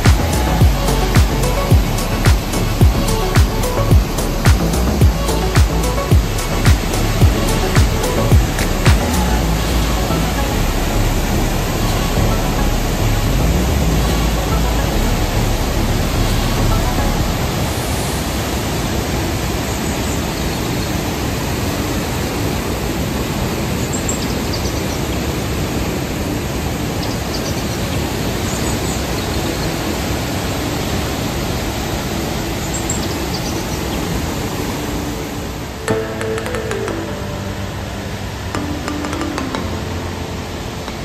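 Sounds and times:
deep rumble: 0.0s - 17.5s
waterfall rushing: 0.0s - 41.0s.

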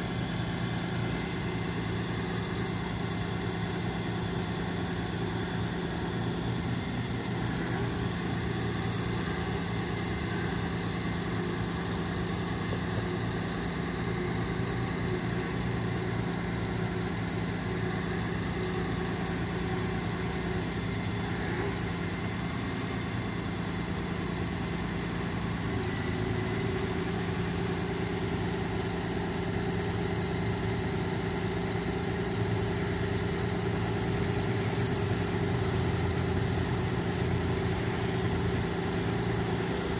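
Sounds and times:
truck engine idling: 0.0s - 39.9s.

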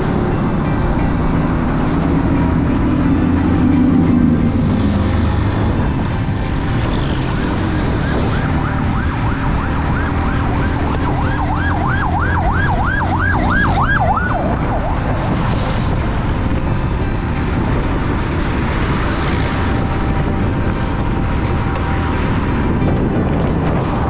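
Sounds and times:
motorcycle engine: 0.0s - 24.0s
road noise: 0.0s - 24.0s
siren warbling: 7.0s - 15.9s.

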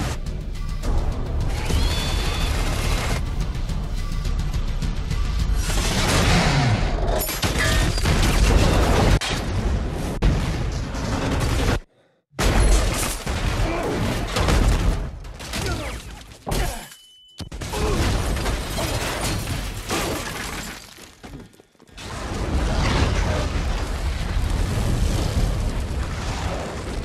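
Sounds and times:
loud explosion blast: 22.0s - 27.0s.

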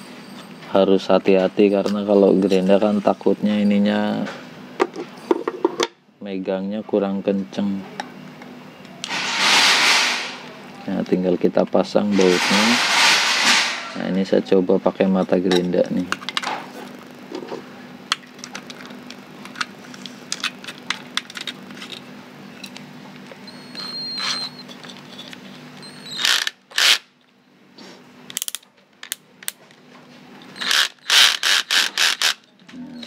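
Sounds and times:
noisy bursts: 9.0s - 10.7s, 12.0s - 14.1s.

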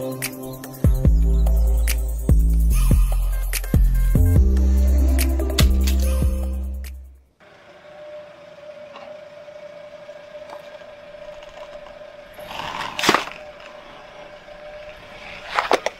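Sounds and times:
faint steady hum: 4.2s - 15.9s
sharp crack: 12.5s - 13.7s.

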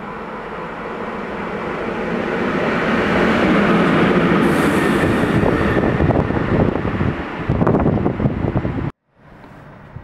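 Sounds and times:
diesel locomotive engine: 0.0s - 10.0s.

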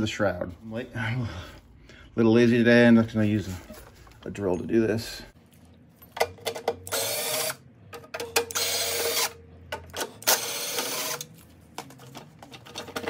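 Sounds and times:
cordless driver whirring: 6.8s - 7.6s, 8.4s - 9.4s, 10.2s - 11.3s.

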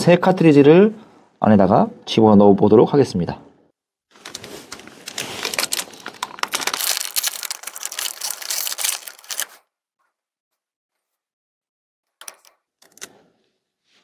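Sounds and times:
packaging pouch crinkling and tearing: 4.2s - 9.6s.

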